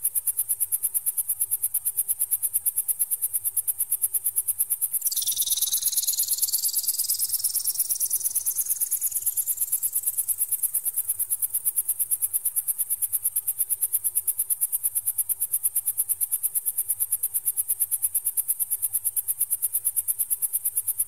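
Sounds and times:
high-pitched pulsing beeps: 5.0s - 10.3s.

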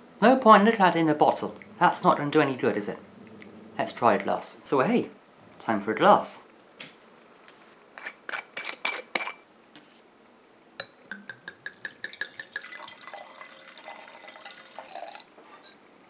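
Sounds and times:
wine pouring into a glass: 11.1s - 15.4s.

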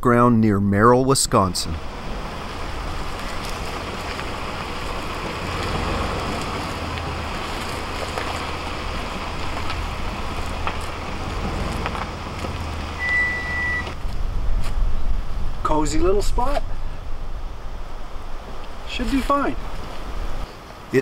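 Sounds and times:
car engine low rumble: 1.3s - 20.6s
even hiss: 1.6s - 21.0s
high-pitched tone: 13.0s - 14.0s.

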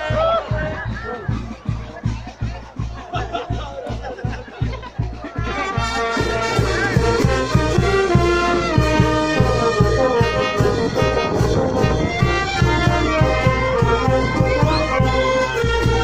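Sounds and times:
quick steady drum beat: 0.0s - 16.0s
brass band horns playing melody: 5.3s - 16.0s.

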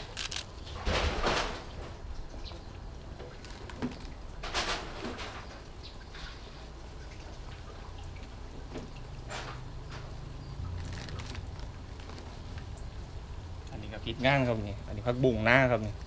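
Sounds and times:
handling noises: 0.0s - 2.4s, 3.1s - 5.7s, 8.8s - 13.0s.

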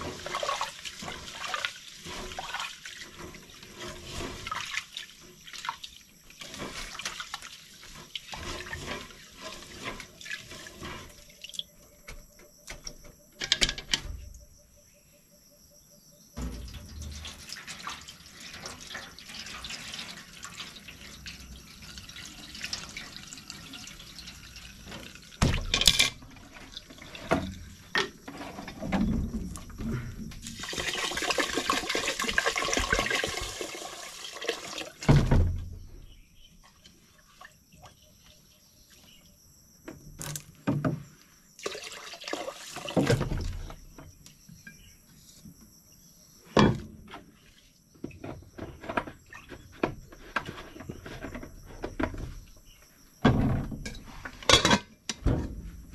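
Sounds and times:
water running and splashing: 0.0s - 11.6s, 16.4s - 27.8s, 30.4s - 35.3s, 41.6s - 43.4s.

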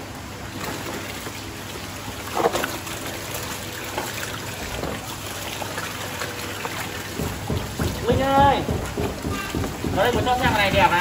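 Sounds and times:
water splashing and sloshing: 0.0s - 11.0s.

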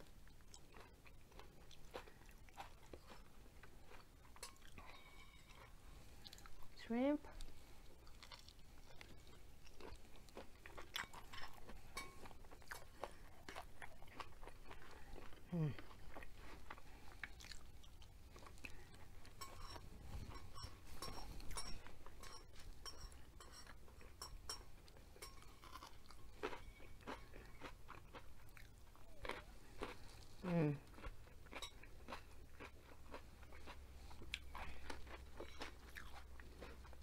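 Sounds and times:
chewing and crunching food: 0.0s - 37.0s
person humming: 15.5s - 15.8s, 30.4s - 30.8s.

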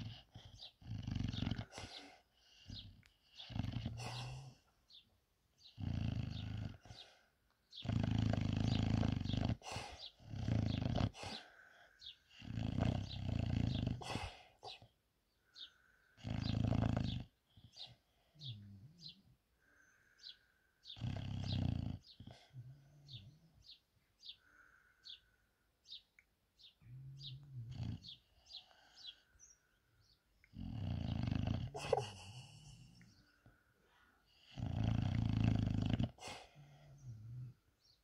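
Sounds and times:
dog snoring: 0.0s - 4.7s, 5.6s - 14.8s, 16.2s - 19.2s, 20.9s - 23.6s, 26.8s - 29.1s, 30.5s - 33.2s, 34.3s - 37.6s.

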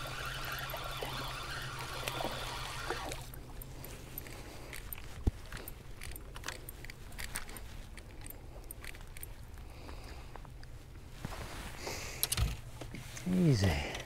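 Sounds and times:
water splashing: 0.0s - 4.5s
fishing tackle clicks: 1.0s - 9.3s.

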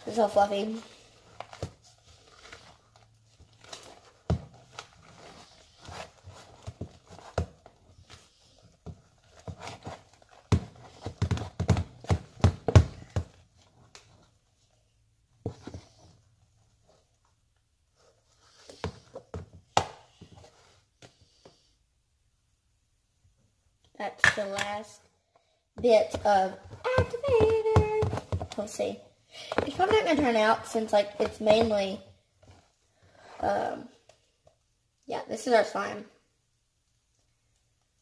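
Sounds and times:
spatula stirring slime: 0.2s - 14.0s, 25.8s - 32.6s.

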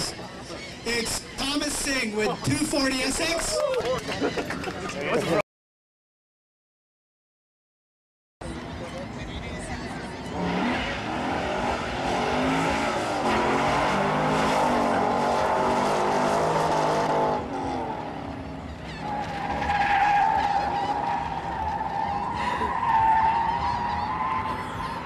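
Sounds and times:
car engine revving: 10.2s - 25.0s
tyres squealing: 18.8s - 25.0s.

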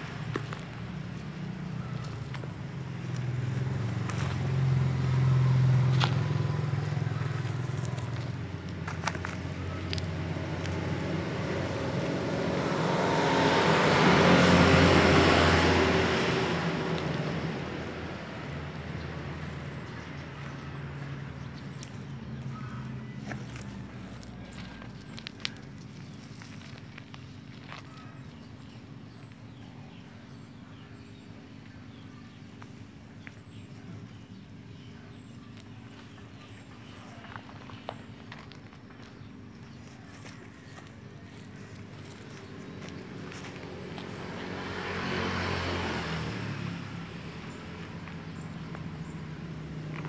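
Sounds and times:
hands patting gravelly soil: 0.0s - 12.2s, 18.4s - 29.5s, 34.8s - 44.5s
motor vehicle passing by: 0.0s - 50.0s
small clicks of stones: 23.2s - 28.1s, 37.2s - 41.0s.

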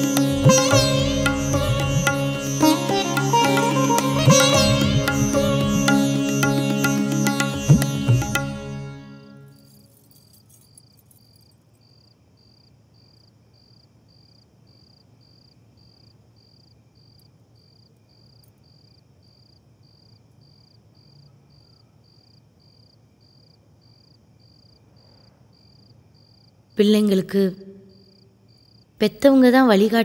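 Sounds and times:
faint cricket chirping: 9.4s - 30.0s.

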